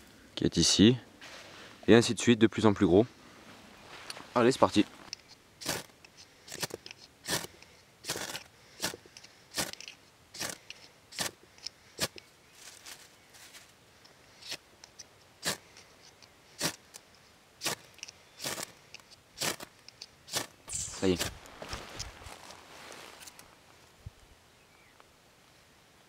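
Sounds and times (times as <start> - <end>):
fire steel scraping: 3.3 - 13.6, 17.6 - 23.8.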